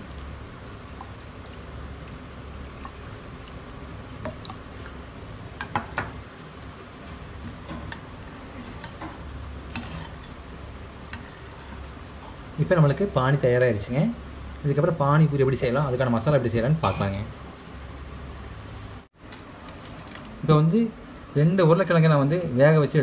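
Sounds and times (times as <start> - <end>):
liquid pouring into a bowl: 0.9 - 5.4
steel spoon stirring liquid: 7.5 - 10.4, 11.0 - 11.9.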